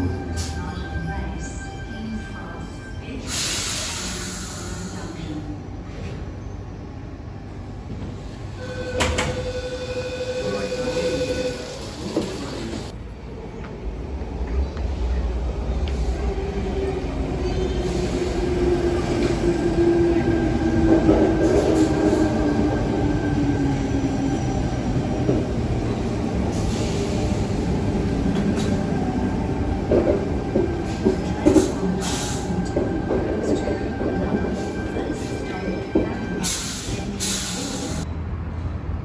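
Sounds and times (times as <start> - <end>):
train brake whine: 8.6 - 12.2.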